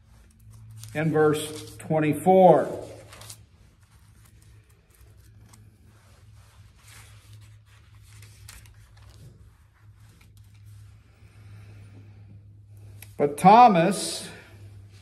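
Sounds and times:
pages rustling: 0.0s - 1.9s, 2.5s - 11.2s.

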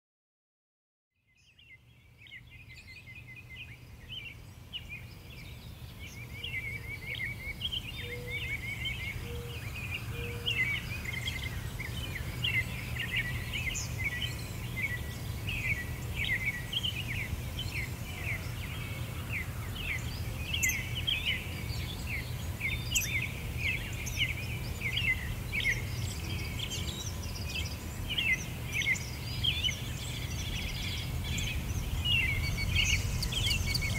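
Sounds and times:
small birds chirping and singing: 1.2s - 33.9s
steady low rumble: 30.2s - 33.9s.

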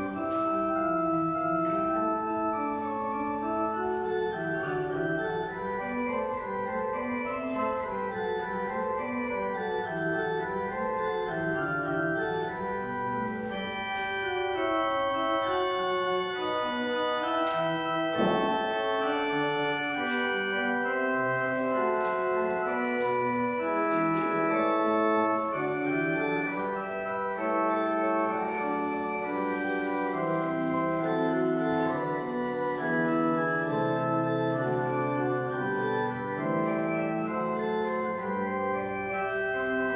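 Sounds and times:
church organ playing: 0.0s - 39.9s
brief knock: 18.2s - 18.7s.

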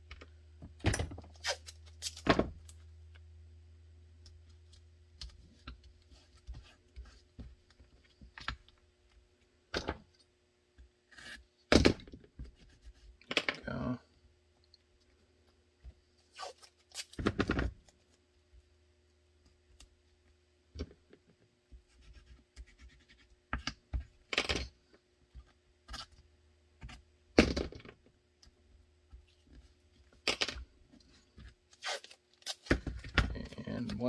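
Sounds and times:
faint steady hum: 0.0s - 34.0s
tape ripping: 1.3s - 2.3s, 16.3s - 17.2s, 31.7s - 32.7s.

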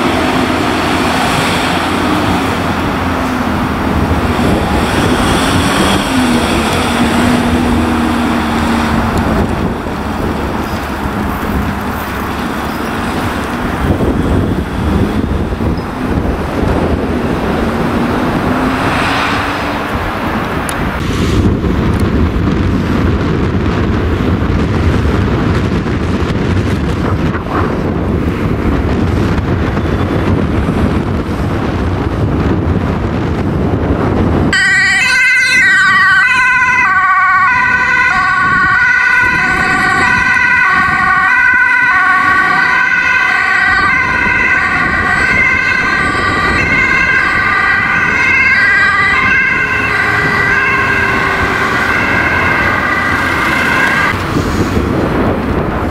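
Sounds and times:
ambulance siren: 0.0s - 21.0s, 34.5s - 54.4s
road traffic: 0.0s - 55.9s
wind noise: 0.0s - 55.9s.

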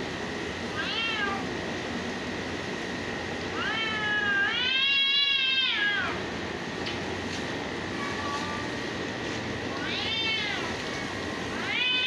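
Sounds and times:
cat yowling: 0.8s - 1.5s, 3.6s - 6.2s, 9.8s - 12.0s.

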